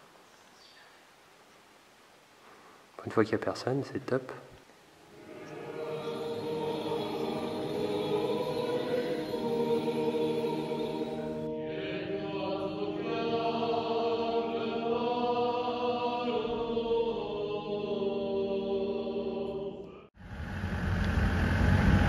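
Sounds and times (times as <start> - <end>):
choir chanting sustained notes: 4.9 - 20.7.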